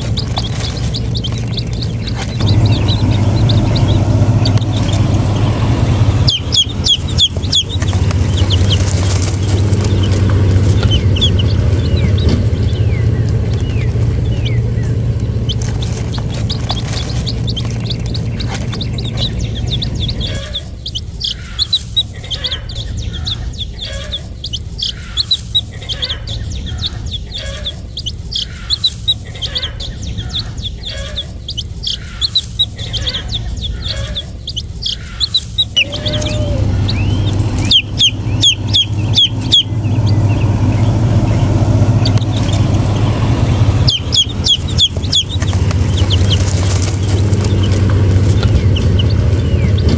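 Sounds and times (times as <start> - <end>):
low pulsing sound: 0.0 - 20.5, 35.8 - 49.9
baby chicks peeping: 0.0 - 49.9.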